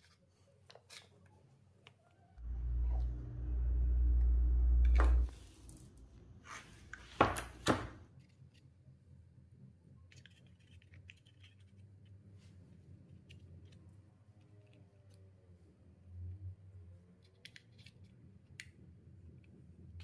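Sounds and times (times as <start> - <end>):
low steady hum: 2.4 - 6.6.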